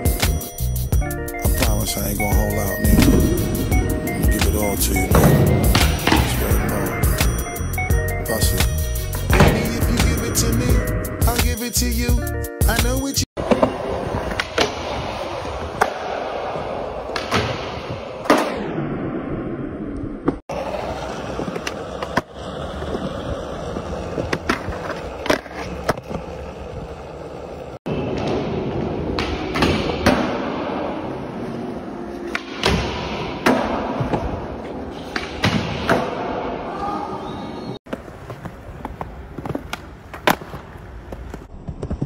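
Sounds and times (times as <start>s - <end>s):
skateboard wheels rolling on concrete: 13.4s - 17.2s, 19.3s - 29.6s, 37.2s - 42.0s.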